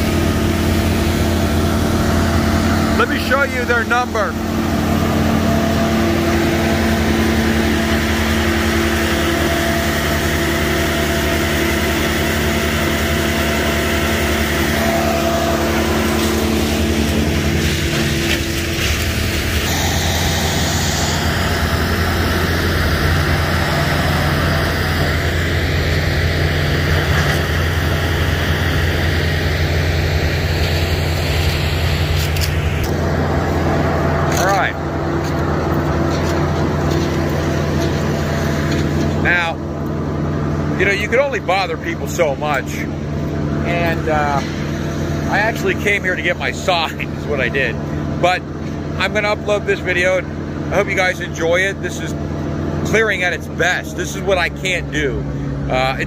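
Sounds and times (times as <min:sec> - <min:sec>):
heavy machinery engine running: 0:00.0 - 0:56.0.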